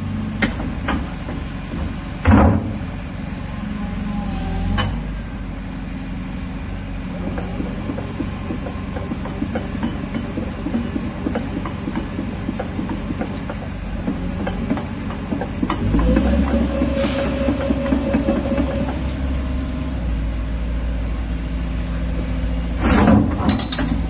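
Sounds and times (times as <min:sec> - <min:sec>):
diesel engine running: 0:00.0 - 0:22.8
brief whine: 0:15.9 - 0:20.0.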